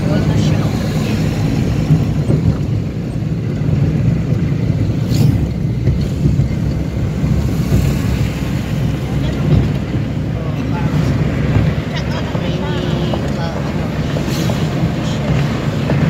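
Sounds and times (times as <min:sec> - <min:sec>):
road and engine rumble in car: 0:00.0 - 0:16.0.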